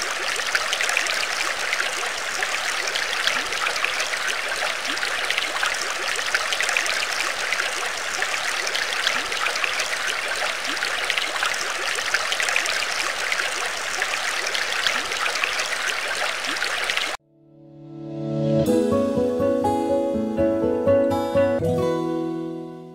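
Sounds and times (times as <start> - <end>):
water trickling and bubbling: 0.0 - 17.2.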